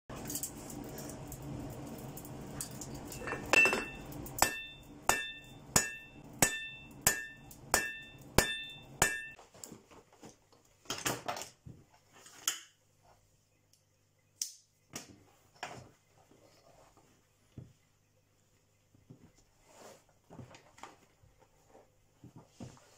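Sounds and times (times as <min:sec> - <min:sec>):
hammer striking metal on anvil: 0:03.5 - 0:09.4.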